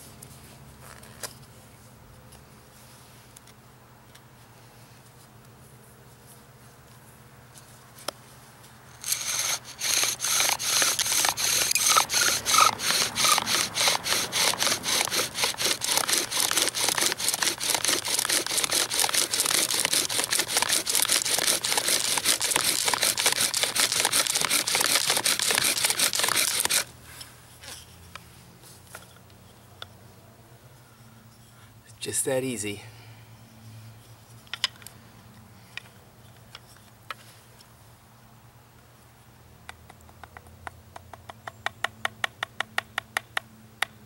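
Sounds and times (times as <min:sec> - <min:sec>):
bow drill grinding wood on wood: 0:09.0 - 0:26.9.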